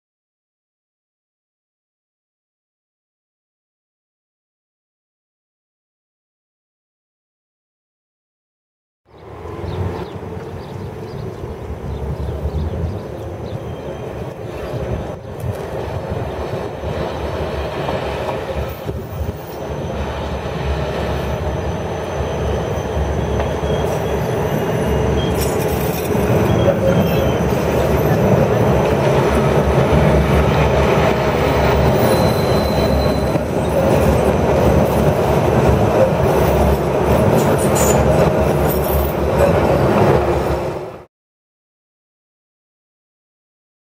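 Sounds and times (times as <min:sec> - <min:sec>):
tram wheels rolling on rails: 0:09.1 - 0:41.0.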